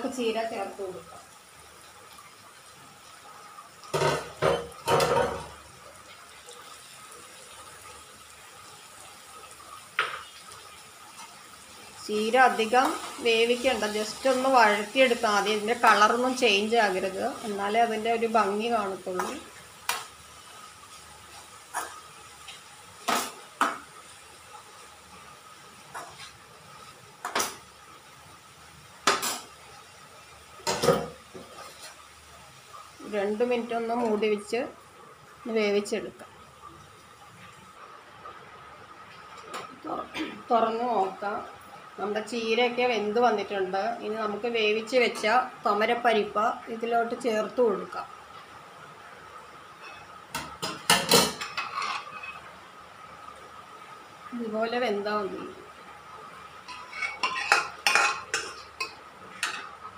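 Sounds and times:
metal spatula clattering on a pan: 56.7 - 59.7.

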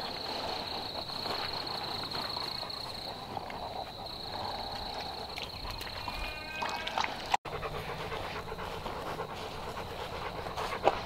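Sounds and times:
dog panting: 0.0 - 5.3, 7.5 - 11.0.

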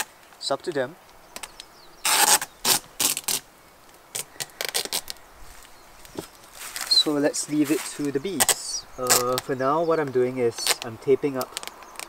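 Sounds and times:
adhesive tape pulled off roll: 1.4 - 6.9, 7.7 - 9.5, 10.5 - 12.0
clicks and rustles of handling: 3.0 - 12.0.

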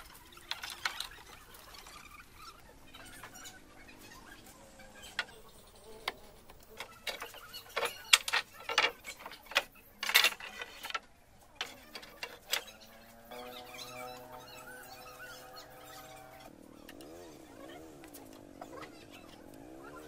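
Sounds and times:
wooden planks knocking and clattering: 0.3 - 1.4, 6.0 - 12.6.

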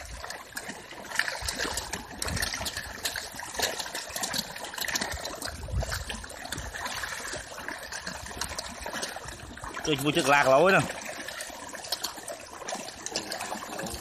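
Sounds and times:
fish splashing in water: 0.0 - 14.0.

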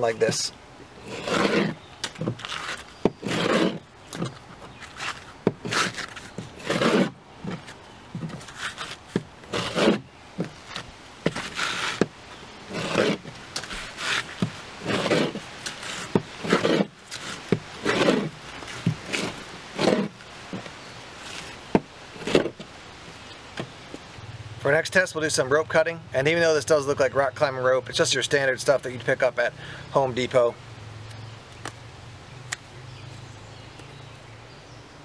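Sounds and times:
knife rasping through paper: 1.0 - 1.8, 2.4 - 3.8, 4.8 - 7.2, 8.4 - 10.0, 11.4 - 12.1, 12.7 - 20.2.

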